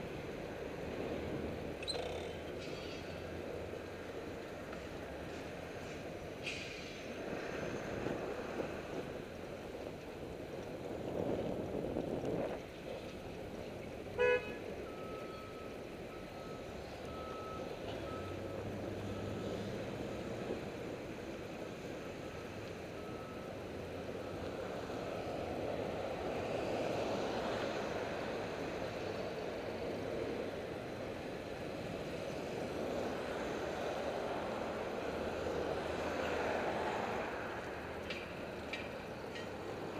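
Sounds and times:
city street traffic: 0.0s - 39.9s
car horn toot: 14.2s - 14.6s.

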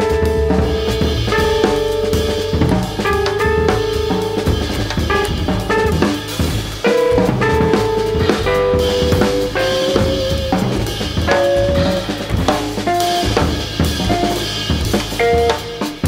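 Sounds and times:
double bass: 0.0s - 16.0s
drum kit playing: 0.0s - 16.0s
electric guitar single notes: 8.7s - 12.1s.

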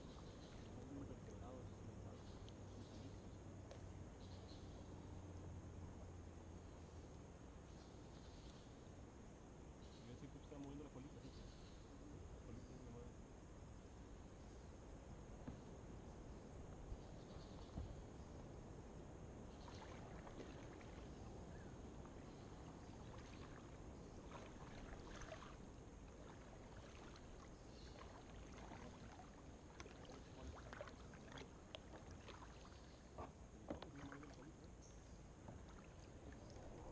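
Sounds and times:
low hiss: 0.0s - 36.9s
paddle splashes and drips: 19.5s - 36.9s.

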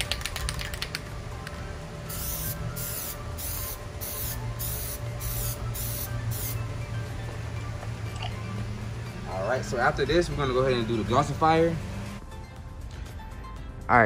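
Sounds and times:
aerosol can spraying bursts: 2.1s - 6.6s.

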